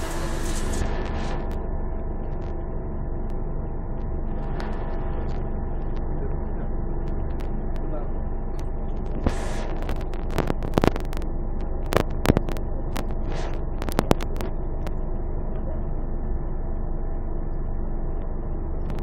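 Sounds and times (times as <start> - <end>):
sharp clicks and knocks: 8.6 - 11.2, 11.8 - 15.0.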